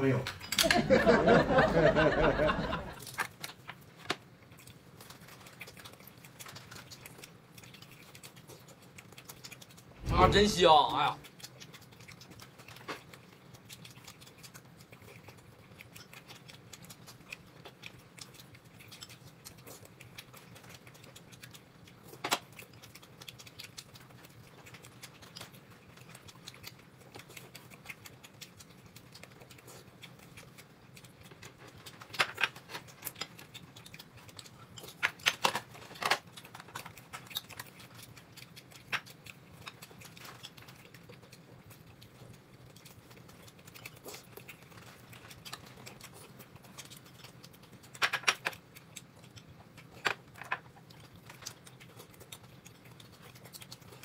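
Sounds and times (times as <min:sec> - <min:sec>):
chewing food: 0:00.0 - 0:54.0
small clicks and crackles: 0:03.0 - 0:10.0, 0:11.2 - 0:54.0
crisp snaps: 0:15.8 - 0:41.4.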